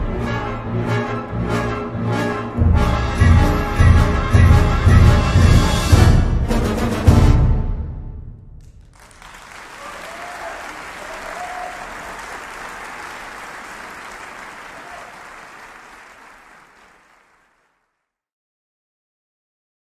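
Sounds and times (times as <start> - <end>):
audience applauding: 8.7 - 17.9
faint calls from audience: 9.8 - 12.4, 14.4 - 15.5.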